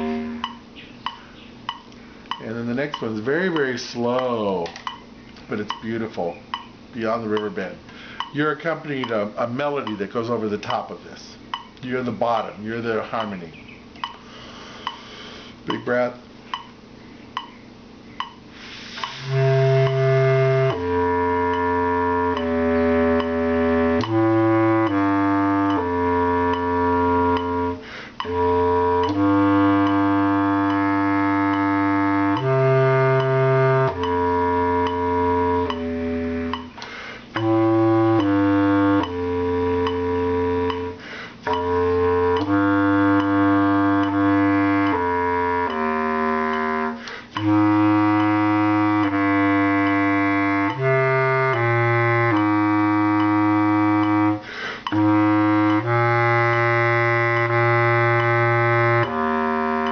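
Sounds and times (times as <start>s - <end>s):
bass clarinet long held notes: 0.0s - 0.6s, 19.0s - 59.9s.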